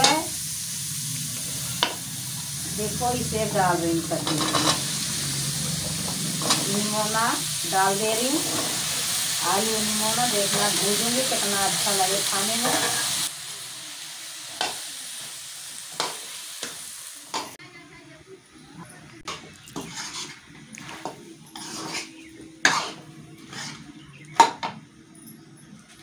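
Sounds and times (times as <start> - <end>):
soft sizzle: 0.0 - 24.4
metal spoon scraping a pan: 4.1 - 13.2, 19.3 - 24.1.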